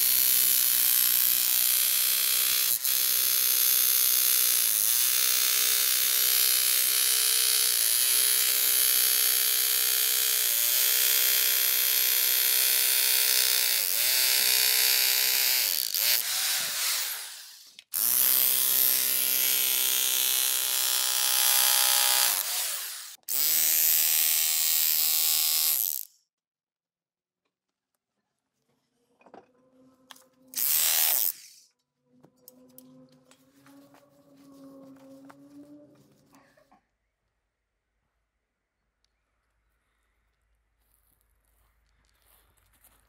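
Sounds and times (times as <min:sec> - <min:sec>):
electric jackhammer digging soil: 0:00.0 - 0:26.1, 0:30.6 - 0:31.6.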